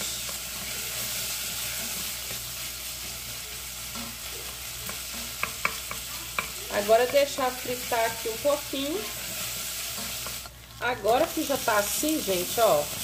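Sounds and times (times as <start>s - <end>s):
onion and garlic sizzling in pot: 0.0s - 13.0s
stirring in a metal pot: 3.8s - 13.0s.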